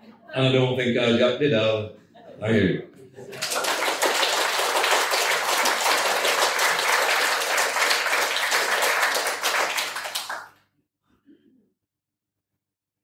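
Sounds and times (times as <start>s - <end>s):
audience applauding: 3.2s - 10.6s.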